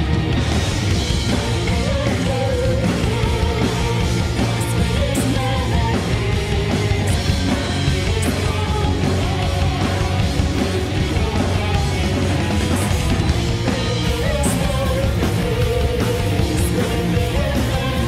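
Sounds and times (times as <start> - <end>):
heavy metal band playing: 0.0 - 18.0
woman singing: 1.3 - 18.0.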